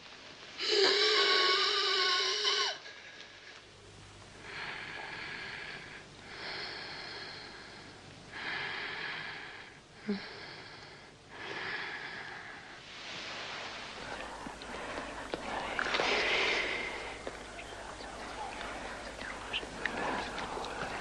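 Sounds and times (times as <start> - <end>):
woman breathing heavily: 4.4 - 21.0.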